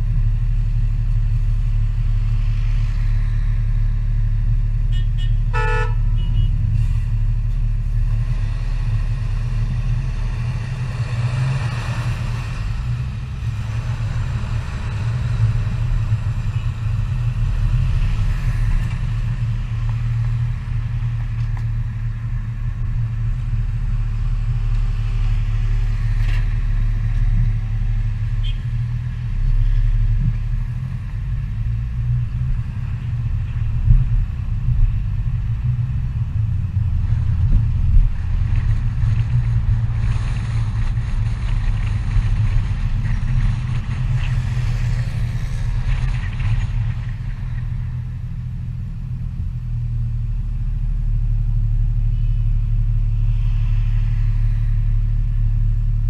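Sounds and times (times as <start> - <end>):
car engine and road noise: 0.0 - 56.0
car horn toot: 4.9 - 6.6, 28.4 - 28.7.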